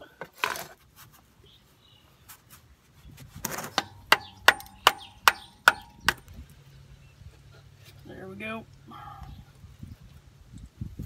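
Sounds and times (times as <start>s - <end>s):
hammer tapping metal putty knife: 3.8s - 6.2s.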